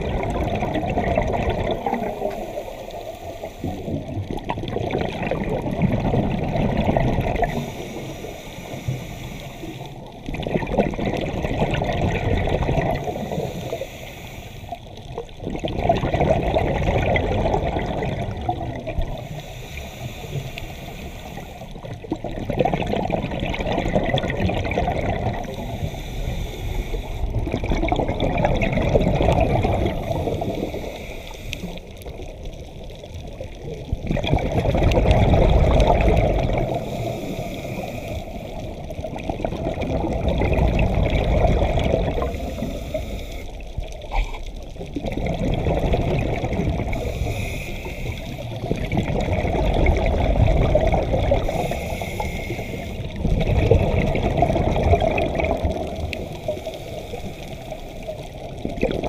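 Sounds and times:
bubbling and gurgling: 0.0s - 14.0s, 14.6s - 59.0s
diver breathing through a regulator: 1.2s - 4.4s, 6.8s - 10.2s, 12.5s - 15.1s, 17.6s - 22.3s, 22.9s - 32.3s, 34.5s - 39.2s, 40.2s - 59.0s.

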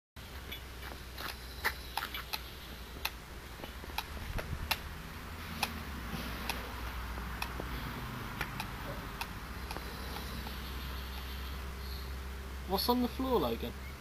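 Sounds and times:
sharp clicks: 1.2s - 4.9s, 5.5s - 5.8s, 6.4s - 7.7s, 8.4s - 11.3s.

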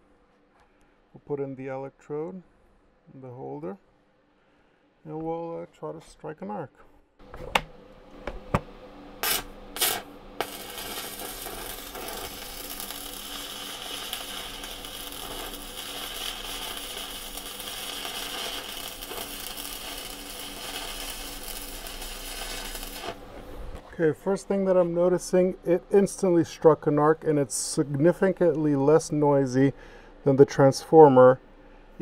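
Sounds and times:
welding electrode pops: 7.4s - 23.2s
welding arc crackling sizzle: 9.2s - 23.8s.

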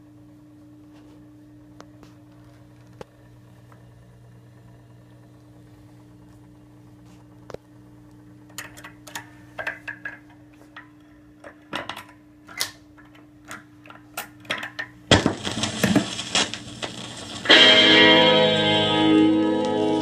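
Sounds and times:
record surface crackle: 0.2s - 20.0s
record changer mechanism clicking: 8.5s - 17.7s.

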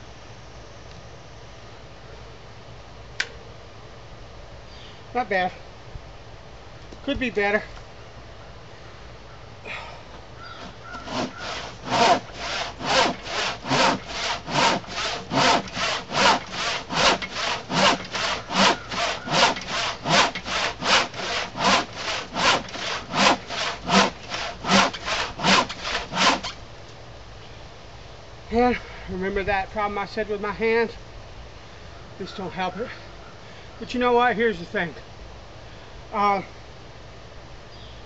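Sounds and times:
handsaw cutting wood: 10.6s - 26.6s.

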